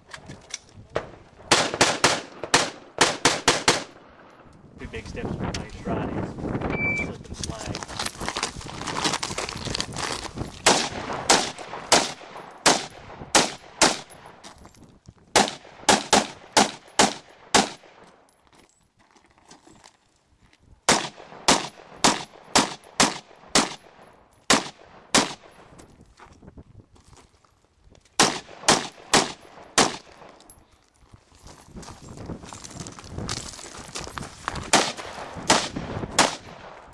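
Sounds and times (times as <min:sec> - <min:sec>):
rifle gunshots: 0:01.5 - 0:04.0, 0:10.6 - 0:14.2, 0:15.3 - 0:18.0, 0:20.9 - 0:23.9, 0:24.5 - 0:25.5, 0:28.2 - 0:30.3, 0:34.7 - 0:36.8.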